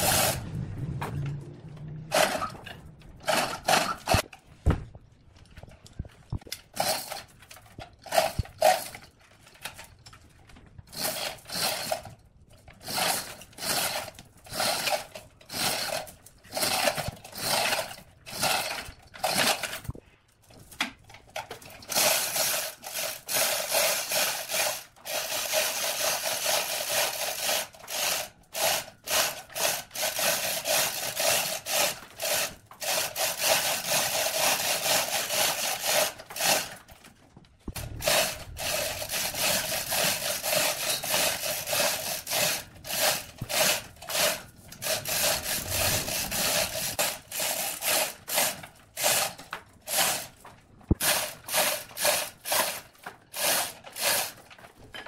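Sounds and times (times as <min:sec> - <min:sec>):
hand sanding wood: 0:37.8 - 0:50.3.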